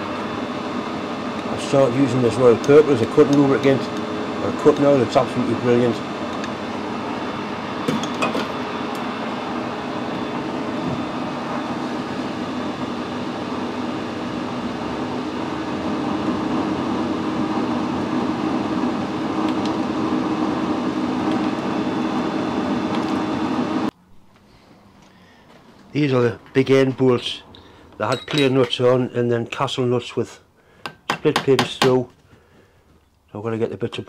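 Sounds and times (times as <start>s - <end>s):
metal lathe running: 0.0s - 23.9s.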